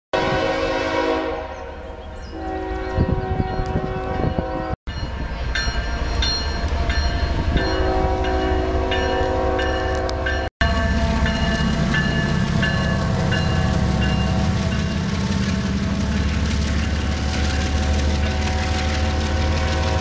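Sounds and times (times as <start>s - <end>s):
locomotive air horn blasts: 0.2s - 4.8s, 7.7s - 11.4s, 17.1s - 20.0s
train rumble: 0.2s - 20.0s.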